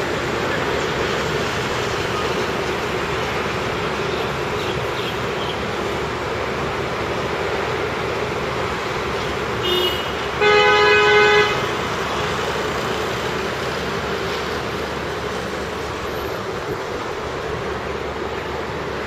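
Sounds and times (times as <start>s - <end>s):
road traffic: 0.0s - 19.0s
vehicle horn: 9.6s - 11.9s.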